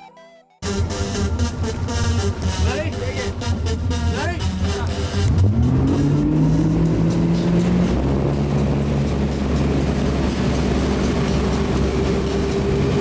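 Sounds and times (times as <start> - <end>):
motorboat engine throttling up: 0.6 - 13.0
water rushing: 4.9 - 13.0.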